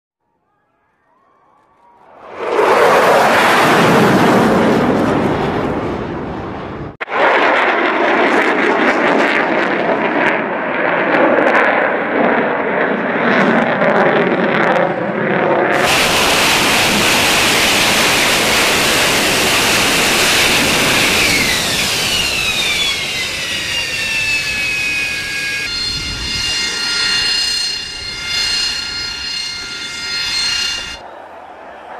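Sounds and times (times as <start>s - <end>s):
jet engine roar: 1.7s - 31.9s
jet engine hiss and whines: 14.9s - 31.1s.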